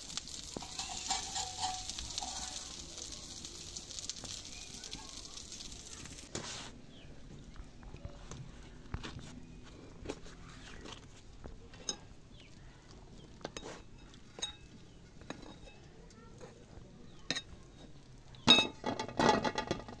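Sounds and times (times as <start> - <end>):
metal spoon clinking on dish: 0.5 - 2.8
ringing metal clatter: 0.6 - 2.8.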